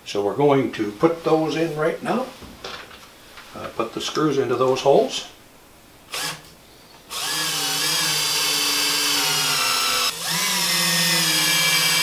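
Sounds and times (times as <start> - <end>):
power drill driving screws: 6.1 - 6.5, 7.1 - 12.0.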